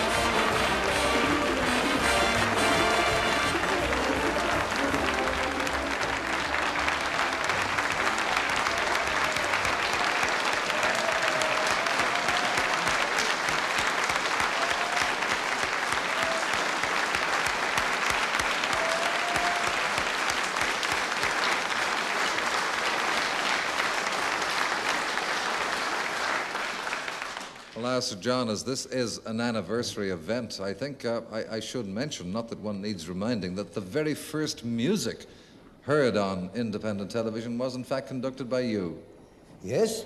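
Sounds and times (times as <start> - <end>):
audience applauding: 0.0 - 27.9.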